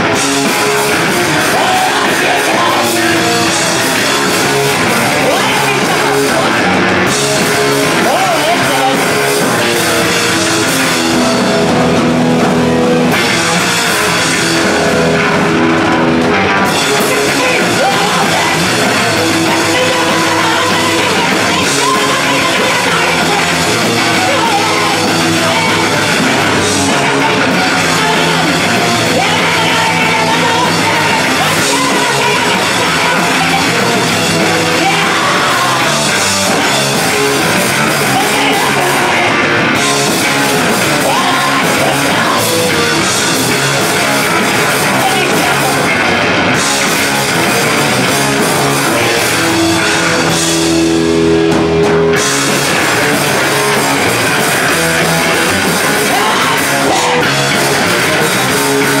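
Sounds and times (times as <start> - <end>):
drum kit: 0.0 - 59.0
electric guitar: 0.0 - 59.0
woman singing into a microphone: 1.3 - 3.2, 17.0 - 25.9, 27.0 - 33.9, 34.6 - 35.9, 38.0 - 39.4, 41.0 - 42.5, 44.9 - 45.9.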